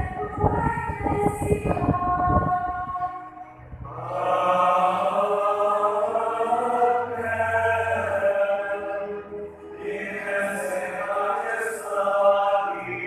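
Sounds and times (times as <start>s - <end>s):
voices singing a chant: 0.0s - 13.0s.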